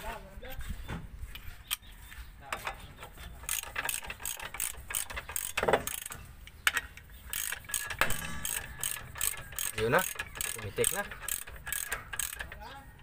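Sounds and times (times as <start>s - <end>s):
ratchet wrench clicking: 3.4s - 12.7s.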